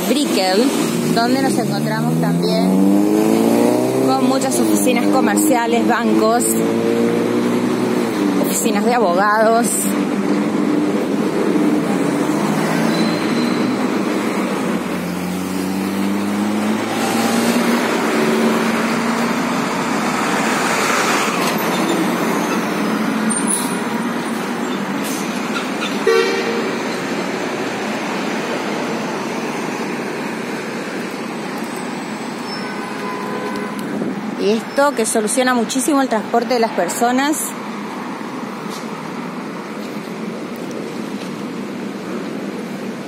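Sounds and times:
vehicle engines pulling away: 0.0 - 8.7, 9.7 - 32.6
truck driving past: 12.2 - 30.4
short horn toot: 26.0 - 26.9.

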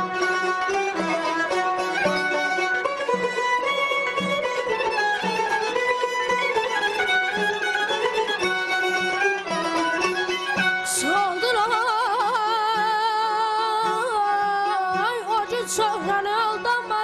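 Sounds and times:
instrumental melody: 0.0 - 16.2
person singing with trills: 10.9 - 17.0.

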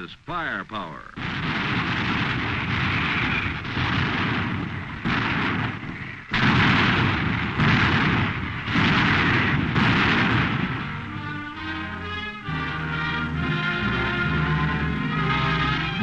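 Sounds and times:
heavy gun blasts: 1.2 - 11.8
brass orchestral music: 9.4 - 16.0.

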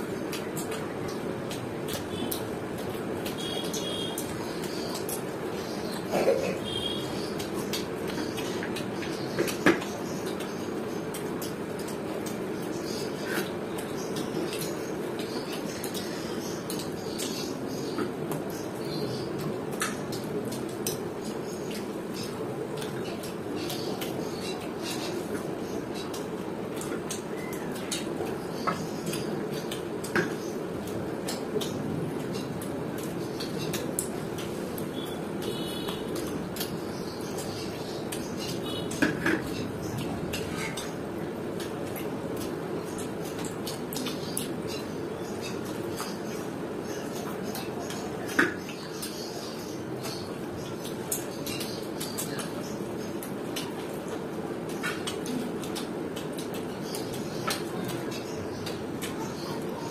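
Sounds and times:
people chewing: 0.2 - 17.3, 49.9 - 59.9.

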